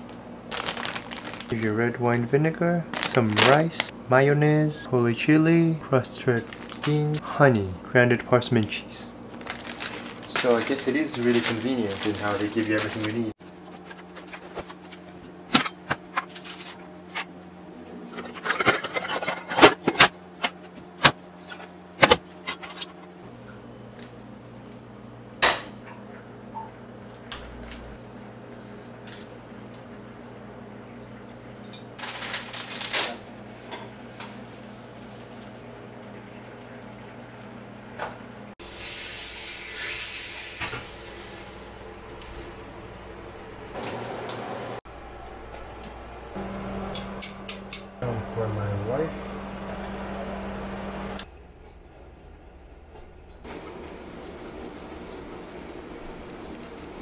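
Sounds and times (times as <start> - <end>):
low kitchen hum: 0.0 - 57.0
kitchen drawer rummaging clatter: 0.5 - 1.6, 9.4 - 13.3, 32.0 - 33.2
food sizzling in frying pan: 38.6 - 43.0.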